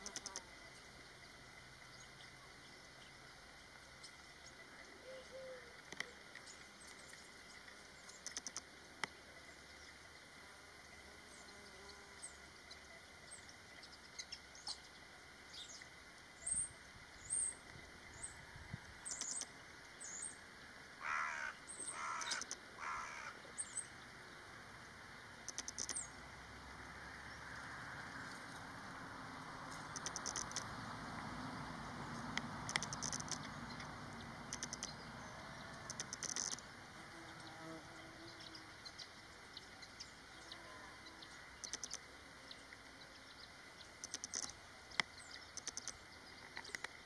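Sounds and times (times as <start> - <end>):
faint outdoor hiss: 0.0 - 47.0
harsh loud bird calls: 21.0 - 23.8.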